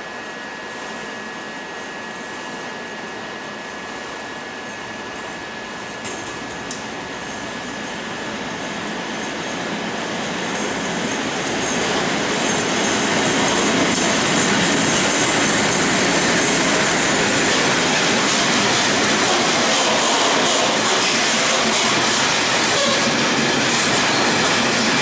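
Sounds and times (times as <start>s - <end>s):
freight train wheels rumbling: 2.6s - 25.0s
high wheel squeal: 22.5s - 23.4s.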